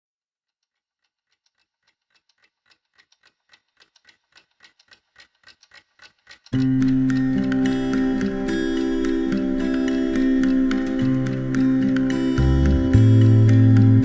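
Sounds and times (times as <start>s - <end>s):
clock ticking: 0.6s - 14.0s
music with sustained tones: 6.6s - 14.0s.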